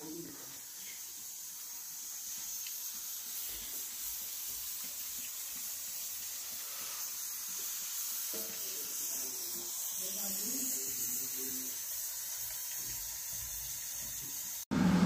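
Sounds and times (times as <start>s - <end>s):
pressure cooker hissing: 0.0s - 15.0s.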